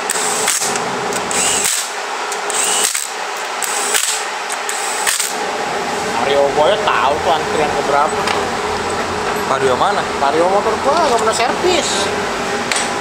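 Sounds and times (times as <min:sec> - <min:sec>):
power drill whirring: 0:00.0 - 0:05.4.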